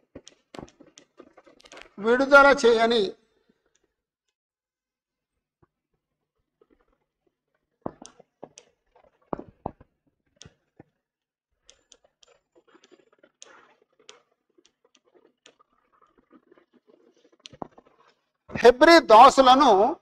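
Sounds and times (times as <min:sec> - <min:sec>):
chalk tapping and scratching on blackboard: 0:11.6 - 0:18.6.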